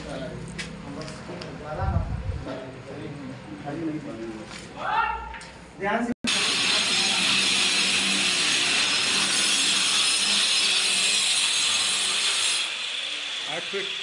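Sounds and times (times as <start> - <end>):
power tool high hiss: 6.3 - 14.0.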